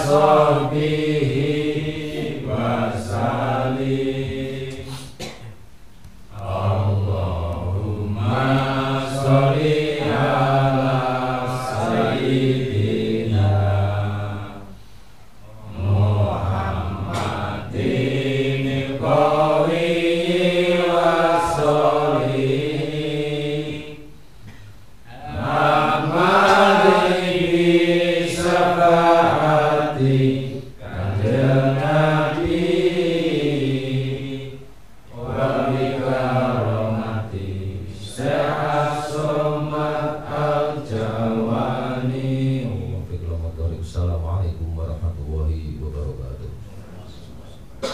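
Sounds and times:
man chanting low: 0:42.5 - 0:47.0.

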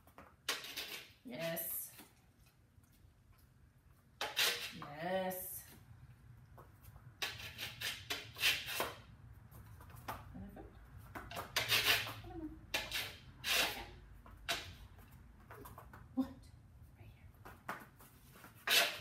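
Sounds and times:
dog claws scraping board: 0:00.4 - 0:01.2, 0:04.2 - 0:04.9, 0:07.2 - 0:09.1, 0:11.2 - 0:14.8, 0:18.4 - 0:19.0.

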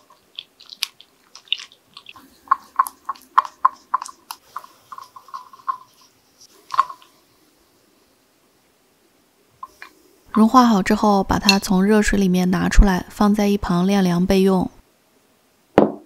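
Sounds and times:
spatula stirring melting chocolate: 0:00.0 - 0:07.2
loud knock: 0:15.8 - 0:16.0.

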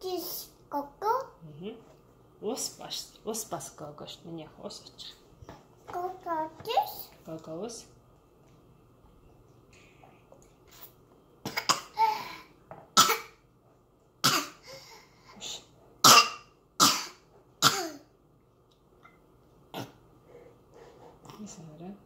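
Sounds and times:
toddler coughing: 0:11.4 - 0:13.4, 0:14.2 - 0:14.6, 0:16.0 - 0:18.1.

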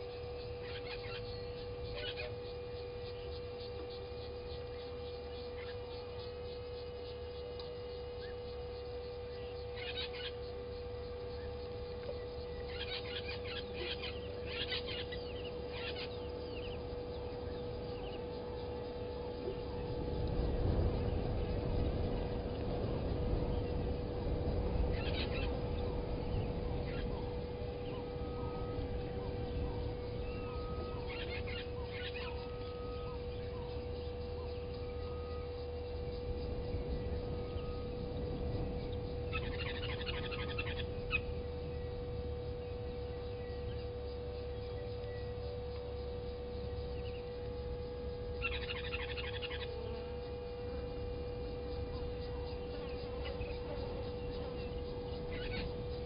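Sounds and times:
steady hum: 0:00.0 - 0:56.0
low rumble: 0:16.2 - 0:33.3, 0:33.9 - 0:45.0
thin whistle: 0:22.9 - 0:56.0.

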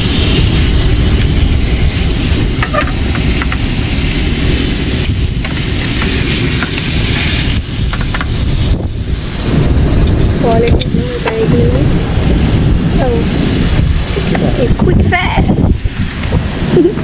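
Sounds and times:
steaks sizzling in a frying pan: 0:00.0 - 0:08.9
wind rumble on microphone: 0:00.0 - 0:17.0.

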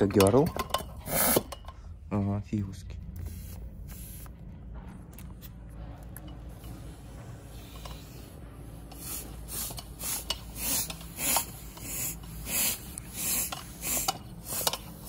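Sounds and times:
bicycle hand pump strokes: 0:07.6 - 0:15.0.

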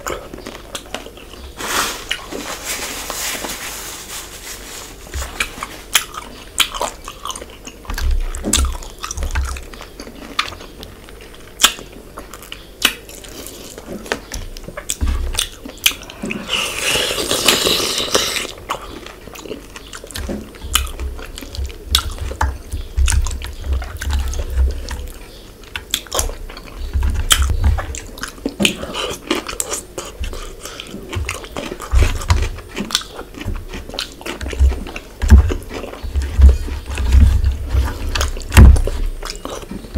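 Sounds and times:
chewing and lip smacks: 0:05.4 - 0:16.5, 0:17.2 - 0:37.0
sucking at bones: 0:15.9 - 0:20.2
slurp: 0:16.4 - 0:18.6.

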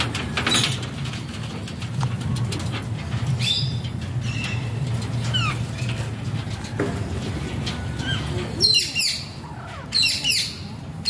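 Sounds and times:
parakeets chirping: 0:03.4 - 0:06.0, 0:07.9 - 0:11.0.

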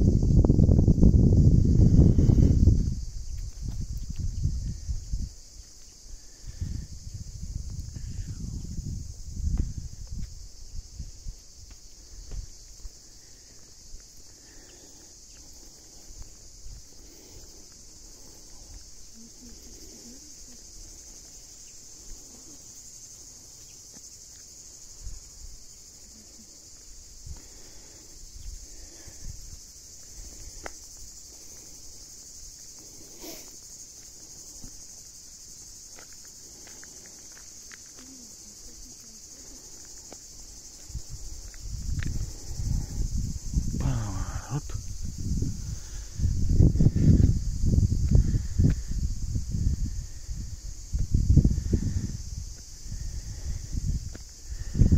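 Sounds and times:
insects chorus: 0:00.0 - 0:54.9
footsteps on asphalt: 0:02.7 - 0:06.0, 0:09.3 - 0:25.7, 0:29.9 - 0:42.6, 0:54.0 - 0:54.5.

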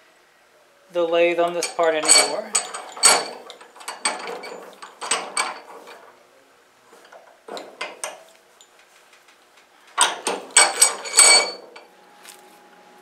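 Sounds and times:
metal disc clinking in vise: 0:01.5 - 0:06.2, 0:10.0 - 0:11.9.

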